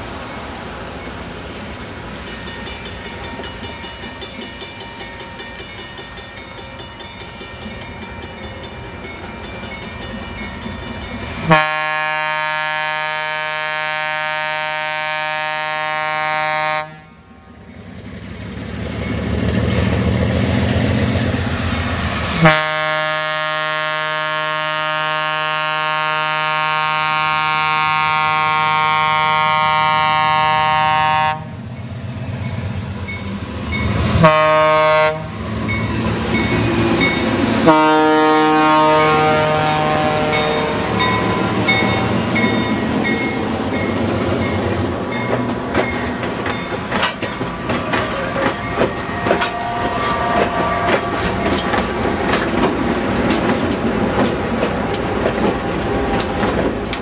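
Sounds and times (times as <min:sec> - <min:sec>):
diesel locomotive engine rumble: 0:00.0 - 0:57.0
locomotive air horn blasts: 0:11.4 - 0:17.1, 0:22.4 - 0:31.6, 0:34.1 - 0:35.4, 0:37.6 - 0:42.1, 0:48.1 - 0:51.5.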